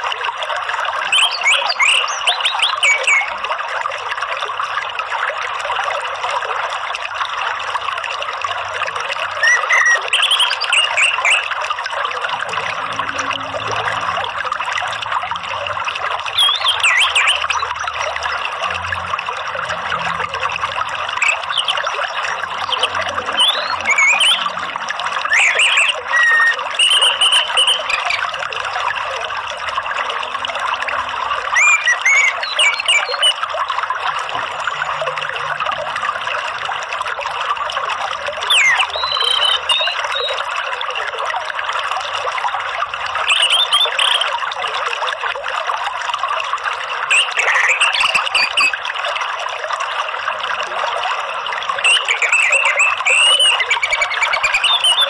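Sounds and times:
flowing water rushing: 0.0s - 55.0s
whistled bird calls: 1.1s - 3.4s, 9.4s - 11.5s, 16.4s - 17.8s, 21.2s - 24.6s, 25.2s - 28.3s, 31.6s - 33.4s, 38.4s - 40.5s, 43.3s - 44.3s, 47.1s - 48.8s, 51.8s - 55.0s.

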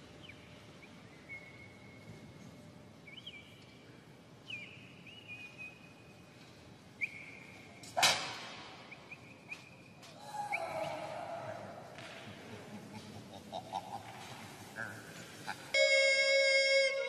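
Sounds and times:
loud sharp crack: 8.0s - 8.8s.

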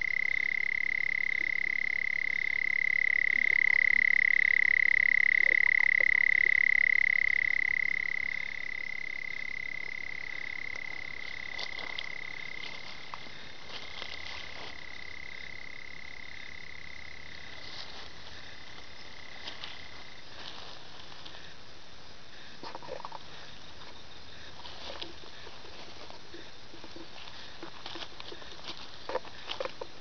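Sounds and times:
toad trilling: 0.0s - 21.6s.

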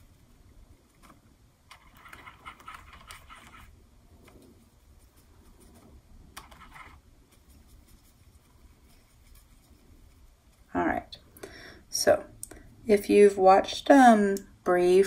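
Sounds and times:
brush scrubbing paper: 0.0s - 1.2s, 1.8s - 11.2s.

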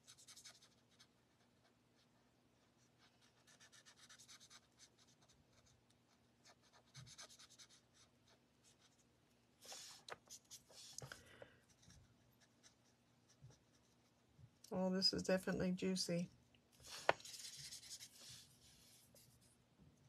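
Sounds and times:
marker scratching on paper: 0.0s - 1.4s, 3.0s - 5.7s, 6.4s - 8.1s, 16.9s - 19.3s.

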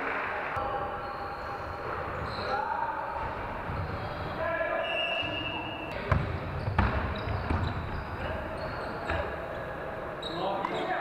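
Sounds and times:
voices echoing in hall: 0.0s - 11.0s
basketball bouncing on gym floor: 5.9s - 9.3s.

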